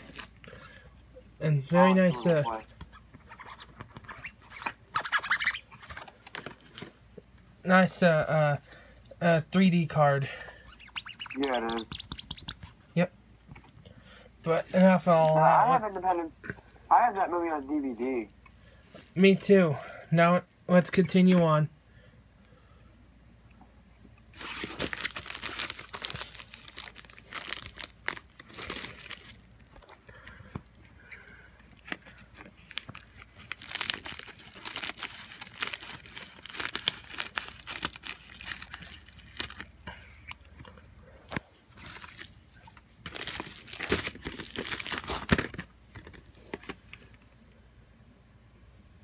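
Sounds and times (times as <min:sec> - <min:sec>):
bubble mailer crinkling: 0:02.0 - 0:06.8, 0:10.6 - 0:12.8, 0:24.3 - 0:29.5, 0:31.8 - 0:39.8, 0:41.7 - 0:46.8.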